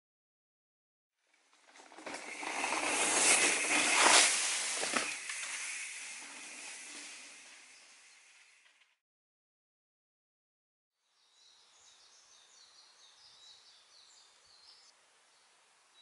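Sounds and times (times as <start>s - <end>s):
bike tyres rolling over dry leaves: 1.3s - 9.0s.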